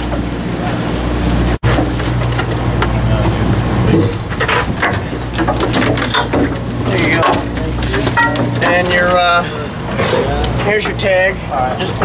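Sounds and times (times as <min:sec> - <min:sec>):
boat engine humming: 0:00.0 - 0:12.0
clatter on deck: 0:03.9 - 0:09.2.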